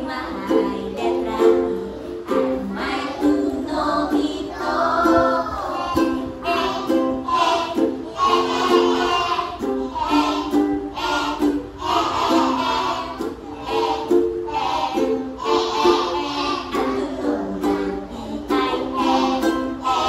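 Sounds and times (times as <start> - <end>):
woman singing: 0.0 - 7.0, 15.0 - 20.0
ukulele strumming: 0.0 - 20.0.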